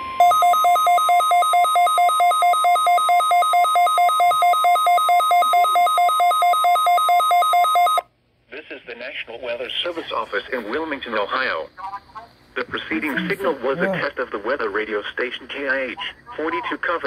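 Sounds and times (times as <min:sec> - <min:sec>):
weather radio two-tone alarm beep: 0:00.0 - 0:08.0.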